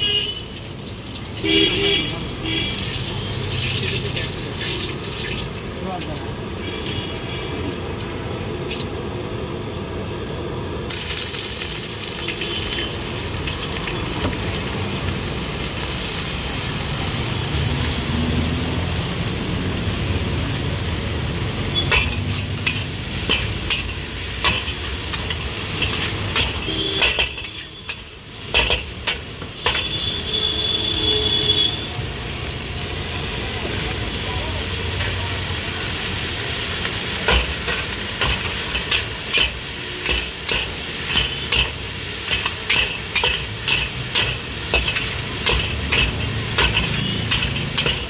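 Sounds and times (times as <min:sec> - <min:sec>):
hot oil sizzling in a wok: 0:00.0 - 0:48.0
metal ladle scraping a wok: 0:21.6 - 0:30.4, 0:37.2 - 0:48.0.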